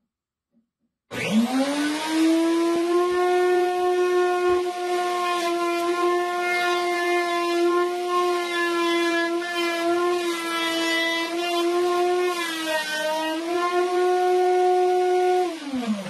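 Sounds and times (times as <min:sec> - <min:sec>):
router high whine: 0:01.1 - 0:04.0.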